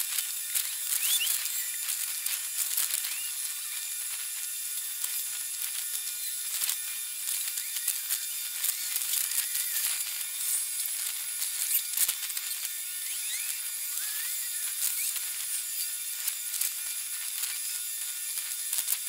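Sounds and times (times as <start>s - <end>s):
high hissing buzz with clicks: 0.0s - 19.0s
short squeaky chirps: 0.9s - 1.8s, 11.6s - 14.3s.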